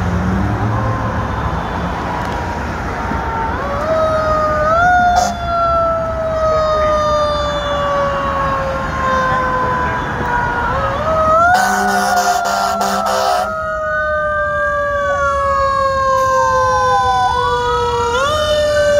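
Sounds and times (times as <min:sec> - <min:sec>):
fire engine siren: 0:00.0 - 0:18.9
street traffic: 0:00.0 - 0:18.9
horn blasts: 0:11.5 - 0:13.5.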